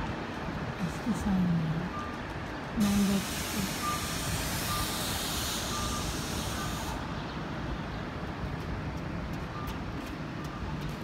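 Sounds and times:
street traffic: 0.0s - 11.0s
reversing alarm beeps: 1.7s - 7.0s, 9.5s - 10.8s
high air hiss: 2.8s - 7.0s.

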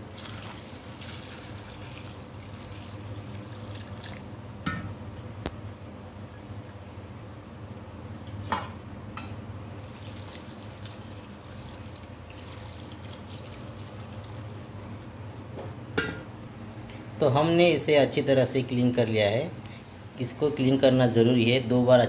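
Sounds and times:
water splashing into steel bowl: 9.8s - 14.6s.

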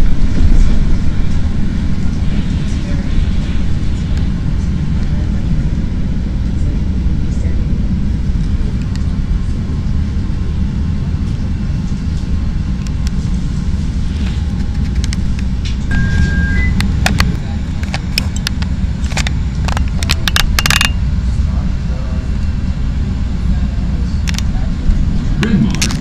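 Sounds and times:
train car low rumble: 0.0s - 26.0s
two-note electronic tone: 15.9s - 16.8s
sharp clicks and knocks: 16.8s - 21.0s.

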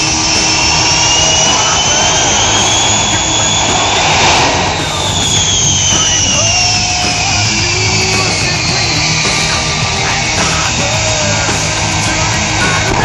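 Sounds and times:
afterburner fireballs: 0.0s - 13.0s
high whine falling in pitch: 0.0s - 13.0s
jet engines roaring: 0.0s - 13.0s.

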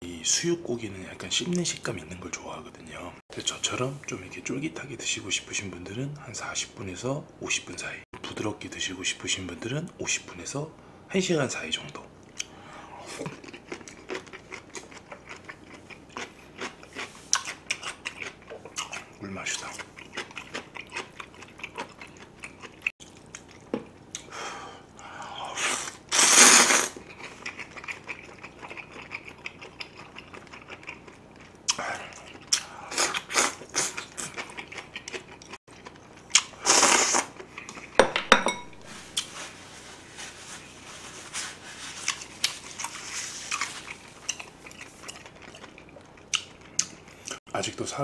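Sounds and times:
wet chewing: 13.1s - 24.3s, 26.2s - 38.0s, 41.9s - 47.4s
slurping noodles: 25.5s - 27.0s, 36.6s - 37.3s.

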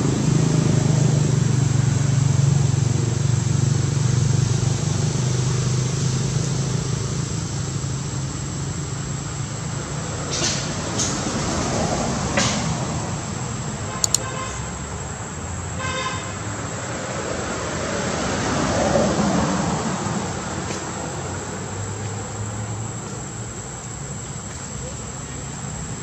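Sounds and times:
road traffic: 0.0s - 26.0s
vehicle horn tooting: 13.9s - 14.8s, 15.8s - 16.4s
sharp clicks: 14.0s - 14.3s.

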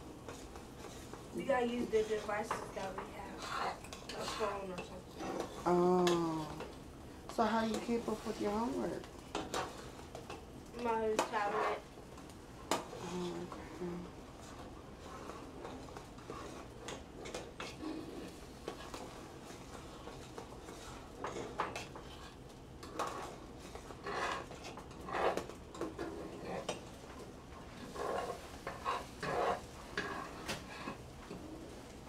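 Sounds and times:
metal utensils scraping pans: 0.3s - 6.7s, 7.4s - 11.8s, 15.0s - 26.9s, 27.6s - 31.5s.

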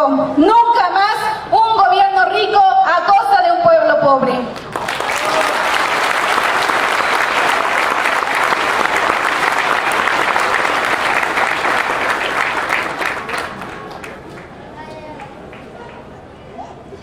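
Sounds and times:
audience applause: 4.6s - 14.6s.

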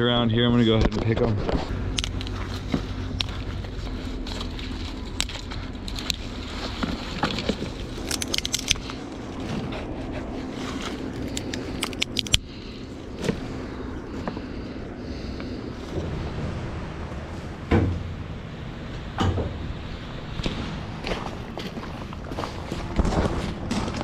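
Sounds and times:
steady low hum: 0.0s - 24.0s
branches rustling: 1.4s - 24.0s
twigs snapping: 1.9s - 9.5s, 10.6s - 14.4s.

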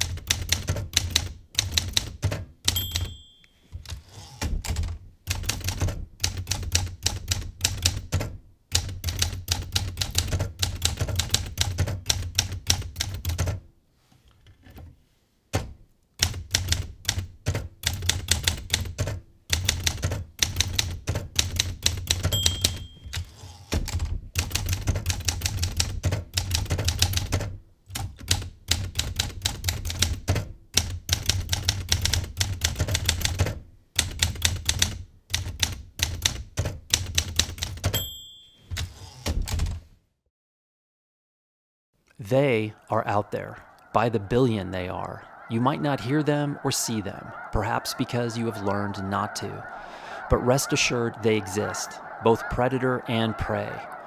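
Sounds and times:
typewriter bell ding: 2.7s - 3.8s, 22.3s - 23.3s, 37.9s - 39.0s.

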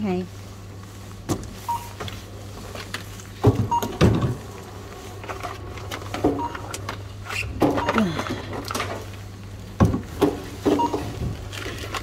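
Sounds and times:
checkout scanner beeping: 1.6s - 2.0s, 3.6s - 4.0s, 6.2s - 7.0s, 7.7s - 8.2s, 10.7s - 11.2s.

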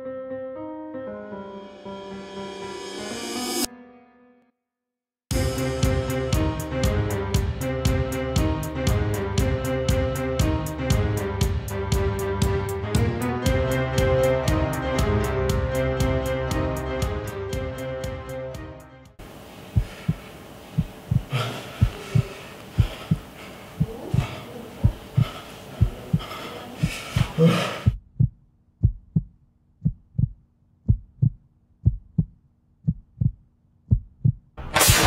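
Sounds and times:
faint hazy background noise: 19.2s - 27.4s
heartbeat thumps: 19.7s - 34.6s.

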